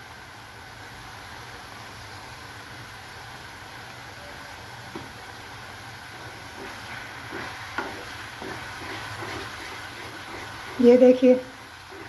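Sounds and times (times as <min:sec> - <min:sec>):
masala sizzling in a pan: 0:00.0 - 0:12.0
wooden spoon scraping a pan: 0:06.0 - 0:12.0.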